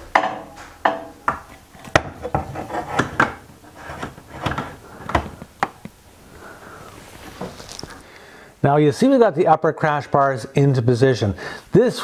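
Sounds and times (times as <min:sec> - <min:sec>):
metal bar clunking against frame: 0:00.0 - 0:03.5
metal rubbing: 0:00.0 - 0:05.2.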